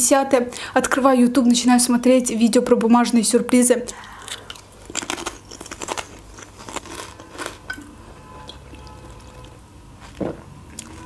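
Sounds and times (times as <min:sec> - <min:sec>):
chewing crunchy snacks: 0:04.0 - 0:07.9.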